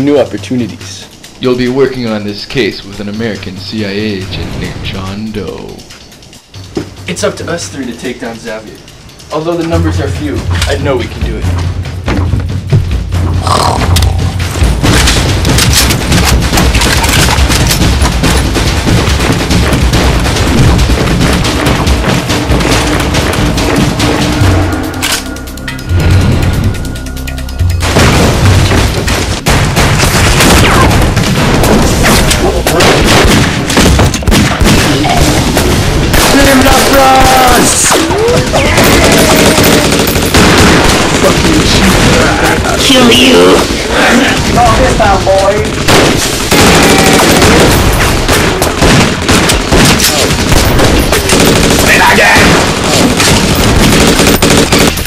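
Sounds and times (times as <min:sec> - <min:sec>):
rapid gunfire and booms: 0:14.2 - 0:25.0, 0:27.8 - 0:55.0
man yelling: 0:51.9 - 0:52.5.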